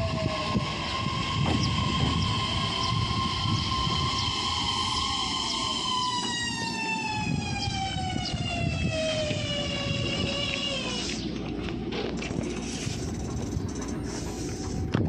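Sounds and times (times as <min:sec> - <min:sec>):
train motor whine: 0:00.0 - 0:15.0
wheels rumbling on rails: 0:00.0 - 0:15.0.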